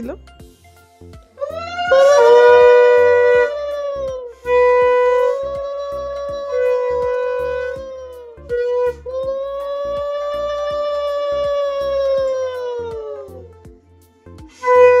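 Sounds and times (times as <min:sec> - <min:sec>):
conch shell blasts: 0:01.4 - 0:12.5, 0:14.5 - 0:15.0.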